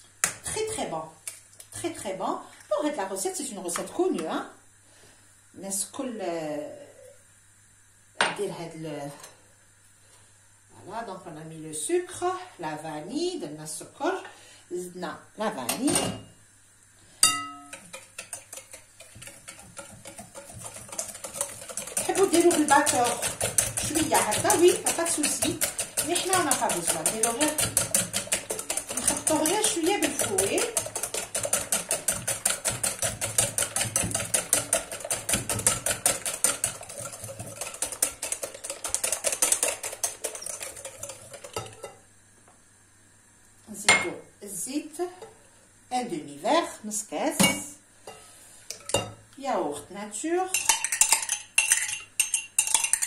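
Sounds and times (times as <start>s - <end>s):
whisk clinking on glass bowl: 17.2s - 42.0s, 50.5s - 53.0s
wire whisk beating in bowl: 17.2s - 42.0s.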